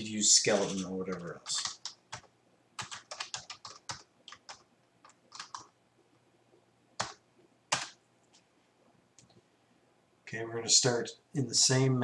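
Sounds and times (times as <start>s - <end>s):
keyboard typing: 0.5s - 5.8s, 7.0s - 8.0s.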